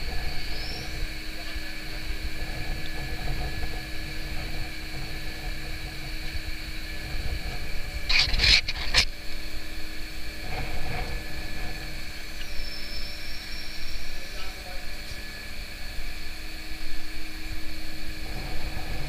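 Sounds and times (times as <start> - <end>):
crane machinery hum: 0.0 - 19.0
high whining tones: 0.0 - 19.0
loud scraping or hissing: 7.0 - 9.1.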